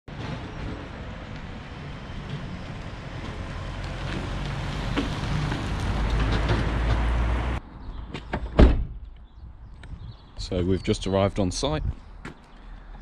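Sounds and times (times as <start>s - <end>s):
van engine and tyre noise: 0.1s - 10.6s.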